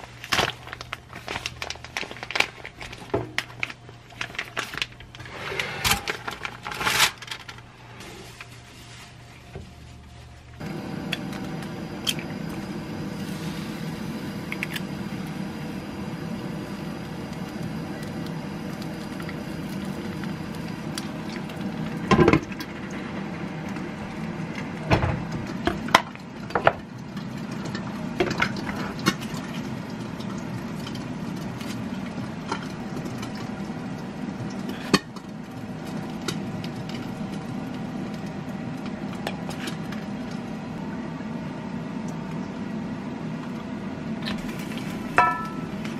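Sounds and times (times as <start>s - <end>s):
background hum: 0.0s - 45.9s
egg frying in a pan: 10.6s - 41.2s, 44.2s - 45.9s.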